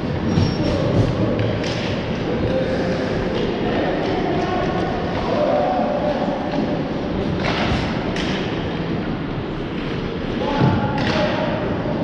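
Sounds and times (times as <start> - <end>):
hockey sticks and puck thudding: 6.4 - 8.8, 9.8 - 11.6.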